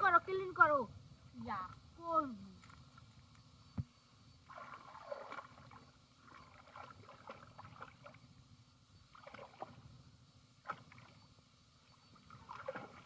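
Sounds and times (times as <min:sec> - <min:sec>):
hands sloshing in muddy water: 0:04.4 - 0:08.3, 0:09.1 - 0:09.8, 0:12.2 - 0:13.0.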